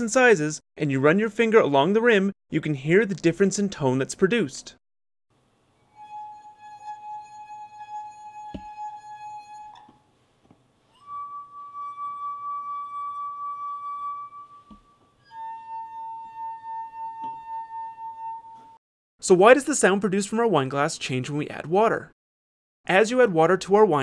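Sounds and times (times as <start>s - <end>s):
wine glasses singing: 11.0s - 18.6s.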